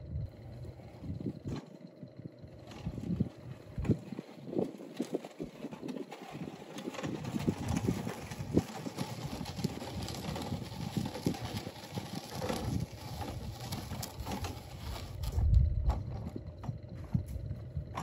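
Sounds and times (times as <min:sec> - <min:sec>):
wood chipper wheels rattling: 0:00.1 - 0:18.0
footsteps on dry dirt: 0:03.9 - 0:18.0
heavy low thump: 0:15.2 - 0:16.1.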